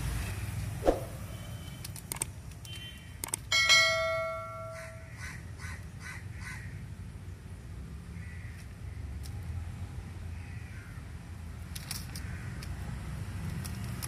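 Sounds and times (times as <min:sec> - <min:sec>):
crow cawing: 0:04.7 - 0:06.7.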